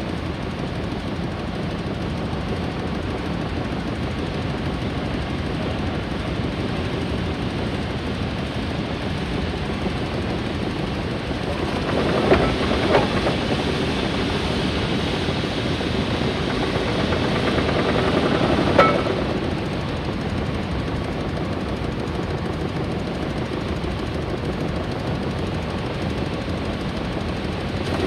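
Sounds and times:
steam engine running: 0.0 - 28.0
sharp knocks: 18.6 - 19.4.

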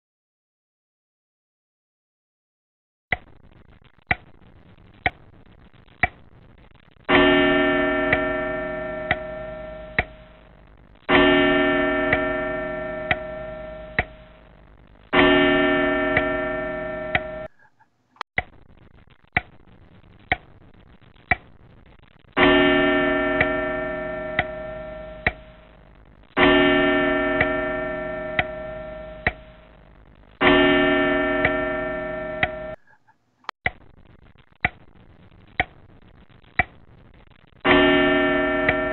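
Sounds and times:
clock ticking: 3.1 - 3.4, 4.0 - 6.3, 7.0 - 17.6, 18.4 - 18.7, 19.3 - 20.6, 21.2 - 21.6, 22.3 - 32.9, 33.6 - 36.8, 38.6 - 38.9
deep bell chimes: 11.1 - 14.3, 15.2 - 17.5, 26.4 - 29.6, 30.4 - 32.8.

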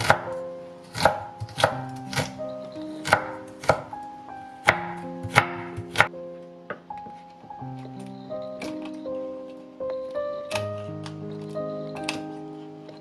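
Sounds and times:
knife chopping on wooden board: 0.0 - 2.3, 3.0 - 3.9, 4.6 - 6.1
soft background music: 0.0 - 13.0.

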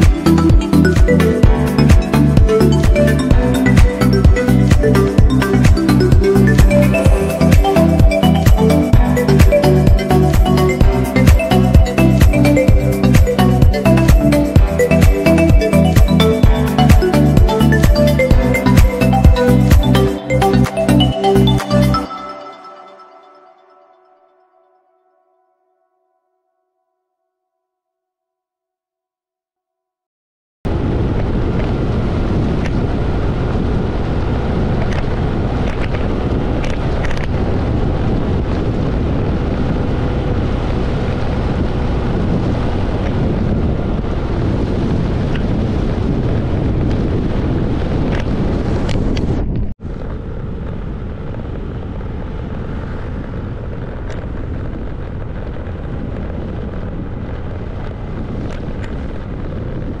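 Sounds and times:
wind buffeting the microphone: 30.7 - 60.0
scooter engine and road noise: 30.9 - 60.0.

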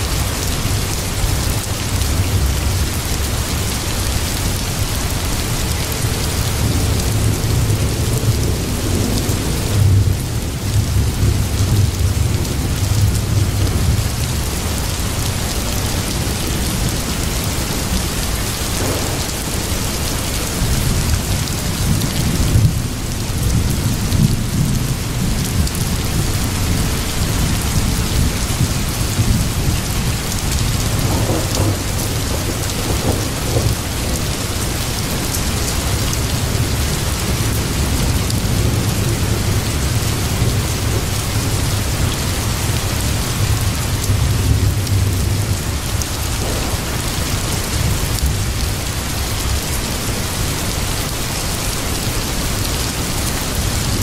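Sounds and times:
rain hissing: 0.0 - 54.0
low thunder rumbling: 5.0 - 52.5.

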